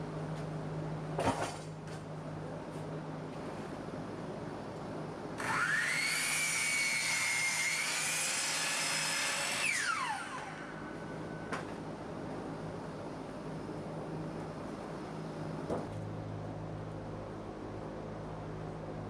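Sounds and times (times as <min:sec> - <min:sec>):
miter saw whining: 0:05.4 - 0:11.8.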